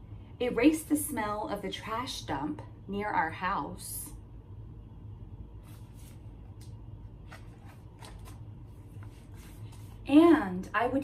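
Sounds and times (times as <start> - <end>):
book pages turning: 5.6 - 10.0.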